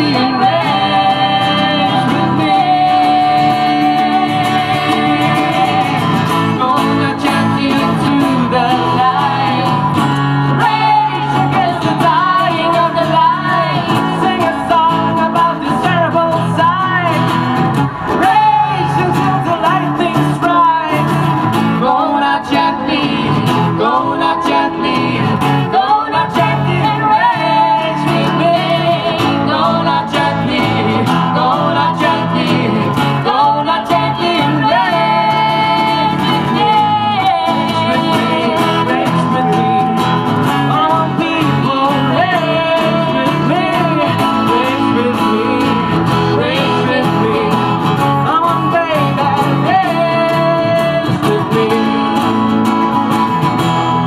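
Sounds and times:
people singing: 0.0 - 53.4
strummed acoustic guitars: 0.0 - 54.0.

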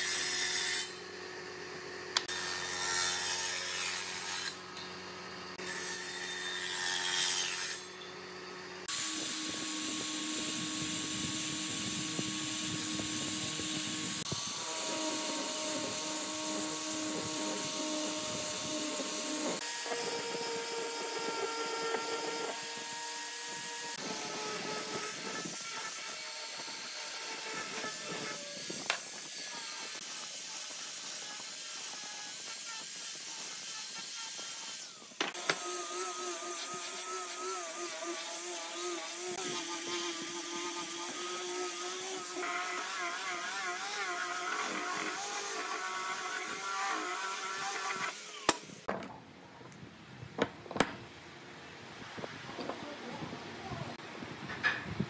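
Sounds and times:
angle grinder sanding wood: 8.8 - 48.9.

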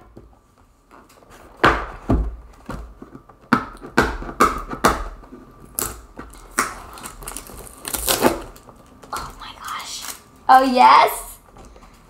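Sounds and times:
knocks on cardboard box: 1.6 - 2.9, 3.5 - 5.2.

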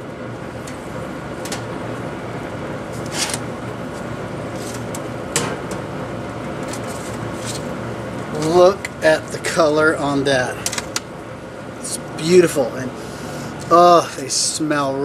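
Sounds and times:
background hum and hiss: 0.0 - 15.0
ribs scraping on metal grate: 2.9 - 3.5, 4.5 - 5.0, 6.6 - 7.7.

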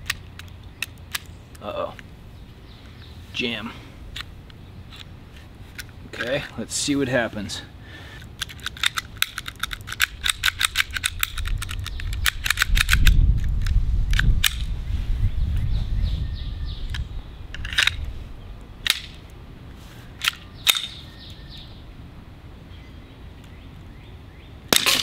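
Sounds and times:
air pistol clicks: 0.0 - 2.1, 8.2 - 14.7, 18.8 - 19.3, 20.2 - 21.6.

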